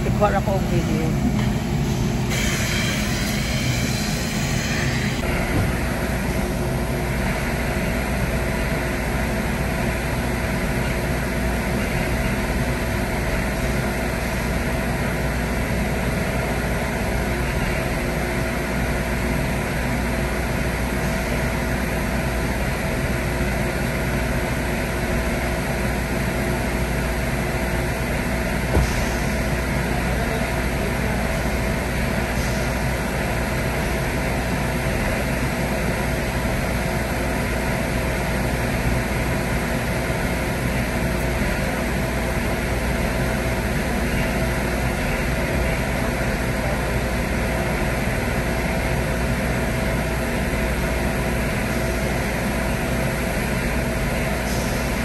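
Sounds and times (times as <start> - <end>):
car wash blower droning: 0.0 - 55.0
brief knock: 28.7 - 29.2.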